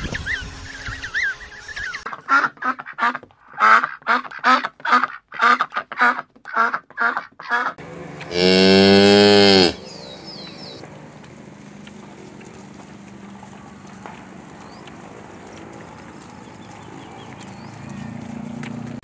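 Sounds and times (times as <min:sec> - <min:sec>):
duck quacking: 0:02.1 - 0:08.7
cow mooing: 0:08.2 - 0:09.8.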